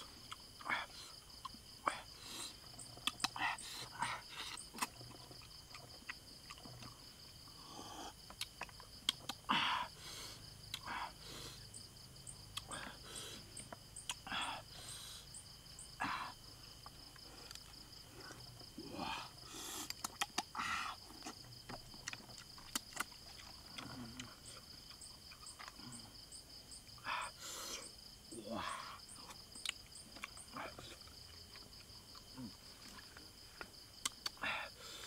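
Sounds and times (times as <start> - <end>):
person eating mouth sounds: 0.0 - 9.6, 10.7 - 11.2, 12.5 - 13.0, 16.0 - 26.2, 28.5 - 33.2, 34.0 - 34.4
insects chirping in pulses: 0.0 - 35.0
insects trilling: 0.0 - 35.0.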